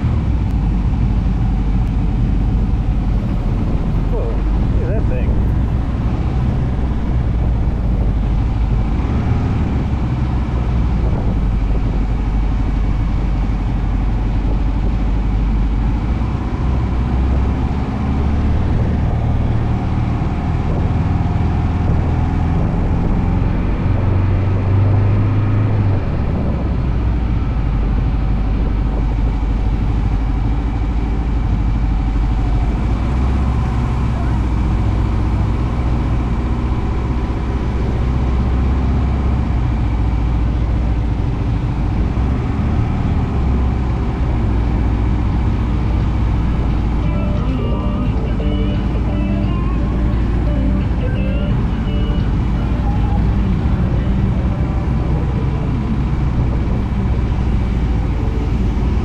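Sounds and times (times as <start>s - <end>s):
wind and road noise: 0.0s - 59.0s
motorcycle engine running: 43.9s - 59.0s.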